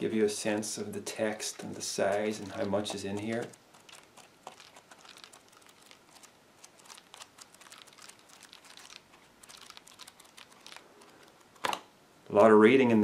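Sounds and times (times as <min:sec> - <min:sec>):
book pages flicking and rustling: 0:01.6 - 0:11.9.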